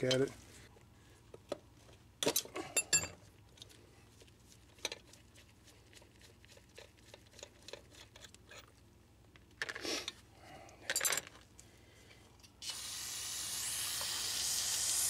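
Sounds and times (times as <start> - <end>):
metal parts clinking: 10.9 - 11.4.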